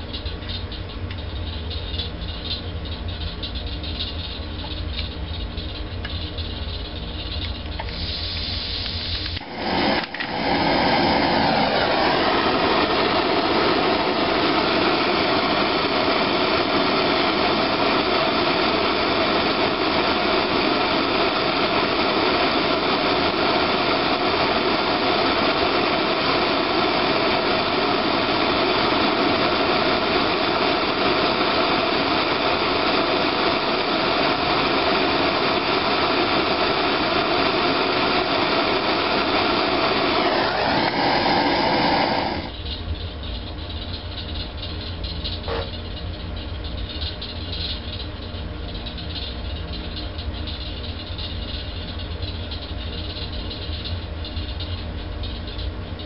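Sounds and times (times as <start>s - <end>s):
blowtorch lighting: 4.0s - 42.6s
blowtorch flame hissing: 6.1s - 42.6s, 45.3s - 45.8s.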